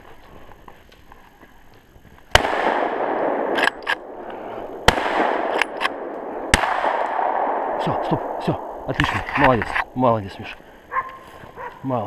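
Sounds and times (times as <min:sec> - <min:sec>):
gunshots: 0:02.3 - 0:04.2, 0:04.8 - 0:09.2
weaker cracks: 0:02.3 - 0:09.9.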